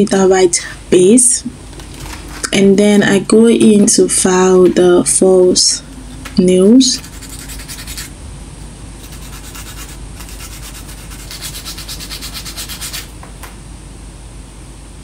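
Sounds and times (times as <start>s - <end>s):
nail file rasping on plastic nail: 7.0s - 8.1s, 9.0s - 13.1s.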